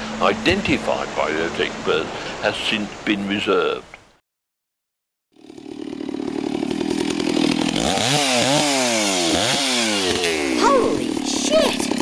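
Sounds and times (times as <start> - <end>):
chainsaw engine revving: 5.4 - 12.0.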